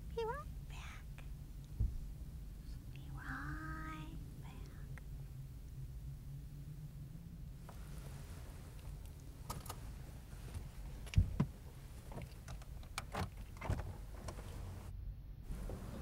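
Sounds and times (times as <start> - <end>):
low steady rumble: 0.0 - 16.0
clicks and knocks in car: 10.6 - 14.5.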